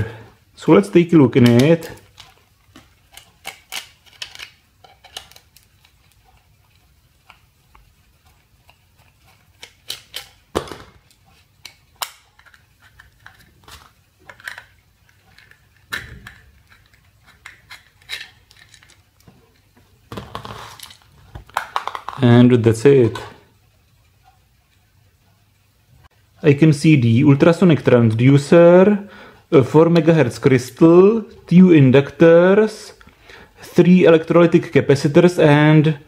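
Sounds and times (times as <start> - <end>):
screwdriver prying hard plastic: 9.6 - 11.0.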